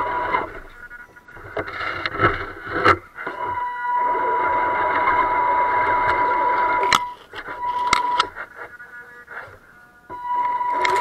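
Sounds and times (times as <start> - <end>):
electric motor whining: 0.0 - 11.0
motor click: 5.0 - 8.3.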